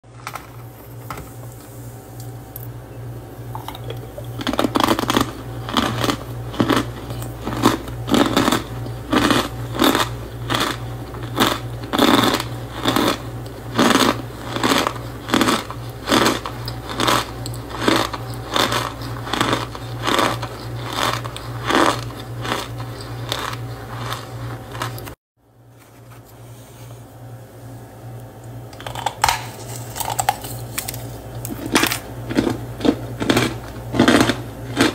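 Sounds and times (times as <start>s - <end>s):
steady low hum: 0.0s - 34.9s
cornstarch blocks crunching: 4.4s - 25.2s, 28.8s - 34.9s.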